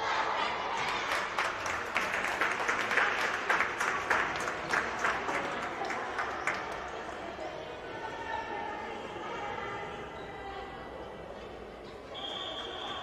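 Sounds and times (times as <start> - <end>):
small group clapping: 0.8 - 7.2.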